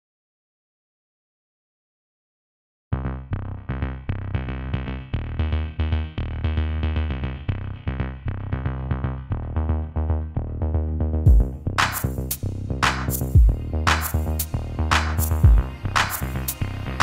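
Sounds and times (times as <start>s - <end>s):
electronic music with drum-machine beat: 11.3s - 17.0s.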